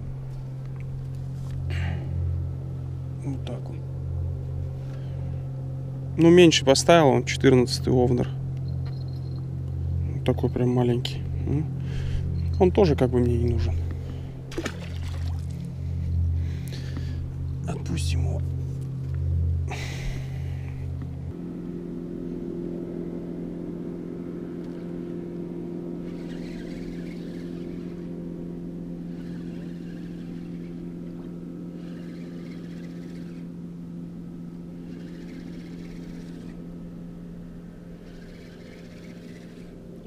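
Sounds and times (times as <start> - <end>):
motorboat engine humming: 0.0 - 40.0.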